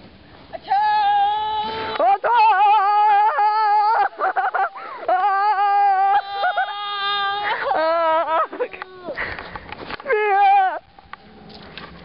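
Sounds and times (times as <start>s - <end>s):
girls yelling high-pitched: 0.6s - 9.2s, 10.0s - 10.8s.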